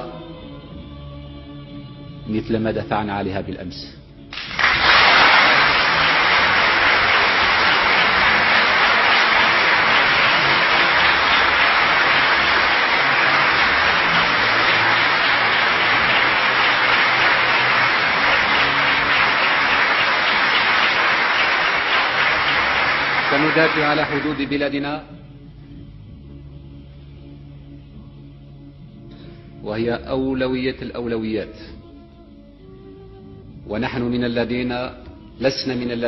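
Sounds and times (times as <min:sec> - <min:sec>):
large crowd applauding: 0:04.3 - 0:24.7.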